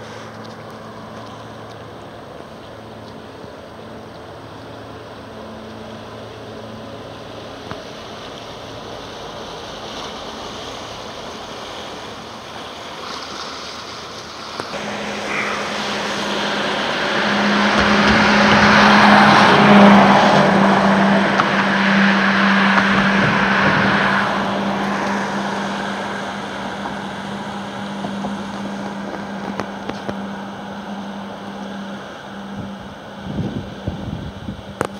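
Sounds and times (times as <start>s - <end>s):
ship engine hum: 0.0s - 34.9s
water churning: 0.0s - 34.9s.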